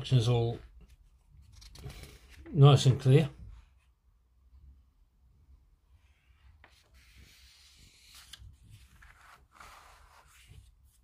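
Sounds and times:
paper pages rustling: 0.8s - 2.6s, 6.6s - 11.0s.

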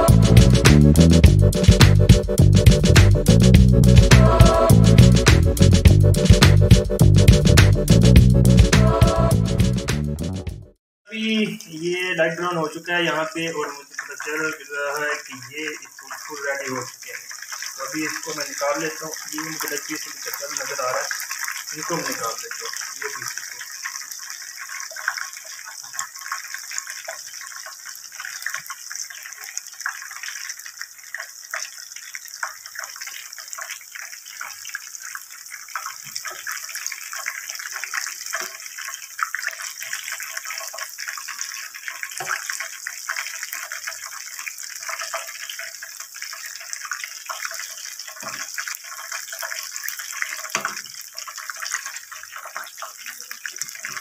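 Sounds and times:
deep-frying sizzle in hot oil: 11.6s - 54.0s.

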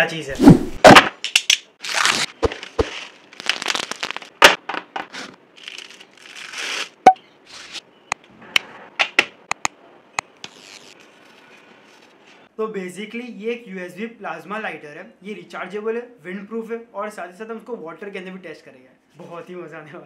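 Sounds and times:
packaging rustling and tearing: 1.8s - 4.5s, 5.1s - 7.8s.

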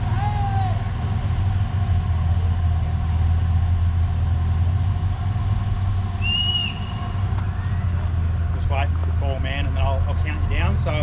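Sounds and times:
truck engine idling: 0.0s - 11.0s
short high whistle: 6.2s - 7.8s.

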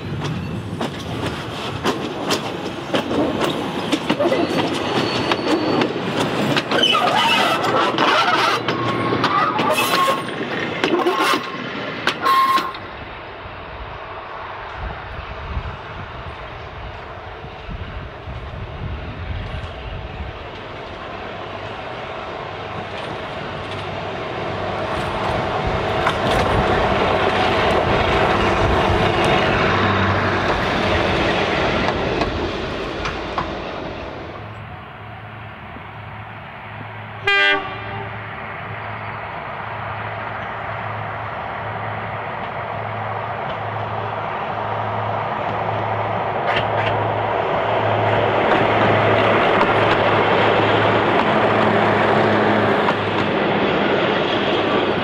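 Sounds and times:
diesel railcar engines passing: 0.0s - 55.0s
train horn blast: 12.2s - 12.8s, 37.2s - 38.3s.

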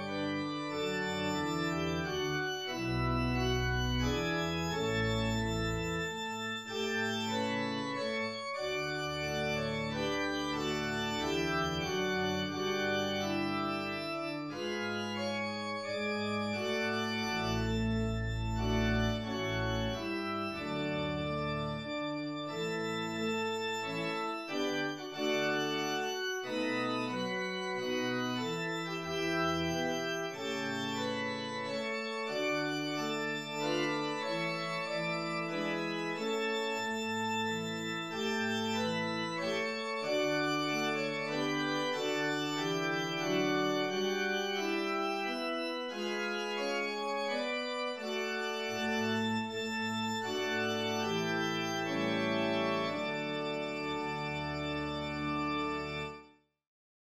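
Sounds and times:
organ chords: 0.0s - 56.3s
deep organ bass notes: 0.4s - 36.5s.

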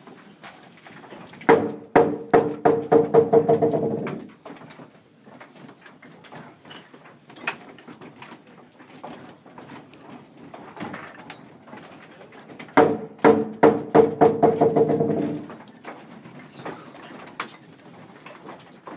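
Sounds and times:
light wooden machinery knocks: 1.4s - 5.5s, 10.5s - 16.3s.

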